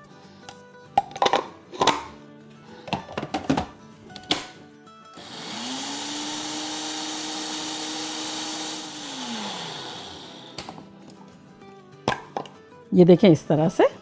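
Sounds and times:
cup clicking and knocking: 0.9 - 2.1, 12.1 - 12.6
grinder motor whining: 5.2 - 10.8.

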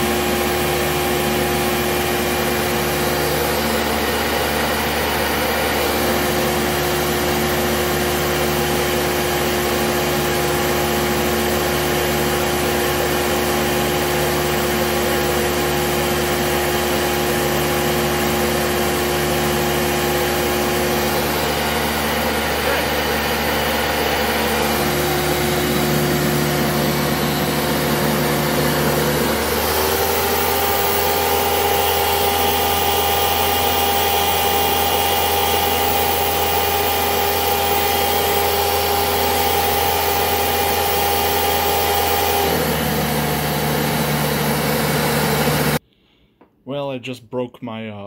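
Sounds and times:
vacuum cleaner motor whine: 0.0 - 45.8.

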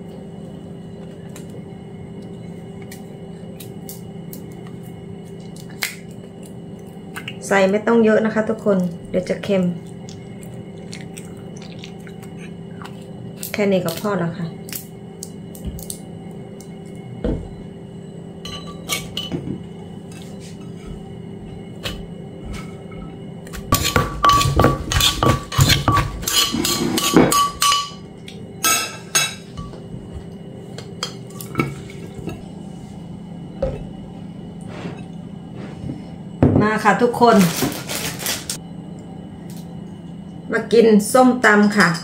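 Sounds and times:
wooden pestle pounding in mortar: 23.6 - 27.7
metal spoon clinking on bowl: 23.9 - 28.0.

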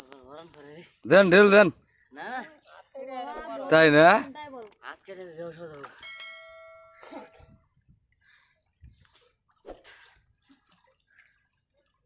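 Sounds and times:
ringing chime: 6.0 - 7.6
river water splashing: 9.0 - 12.0.

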